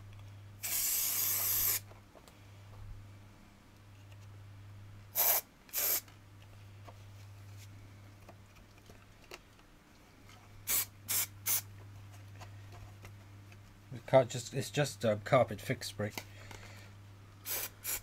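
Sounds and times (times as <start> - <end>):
aerosol can spraying: 0.6 - 1.8, 5.2 - 6.0, 10.7 - 11.7, 17.4 - 18.0.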